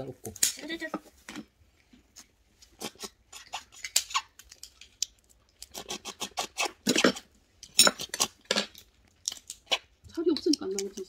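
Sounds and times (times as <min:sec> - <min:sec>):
crab shells cracking: 0:02.9 - 0:11.0.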